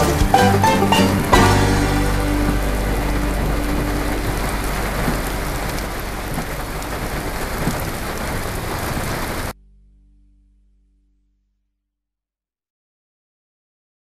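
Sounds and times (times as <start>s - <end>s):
heavy rain falling: 0.0s - 9.6s
faint tone: 1.0s - 8.2s
low rumble: 1.2s - 12.1s.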